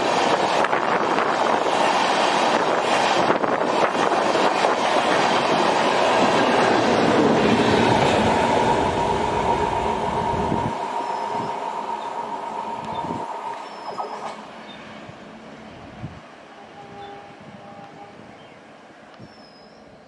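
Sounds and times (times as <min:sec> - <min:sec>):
train wheels rumbling on rails: 0:00.0 - 0:20.0
high wheel squeal: 0:08.7 - 0:14.4.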